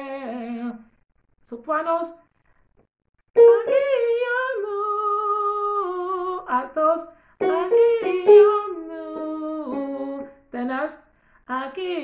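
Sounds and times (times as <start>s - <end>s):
woman singing unaccompanied: 0.0s - 0.9s, 3.4s - 12.0s.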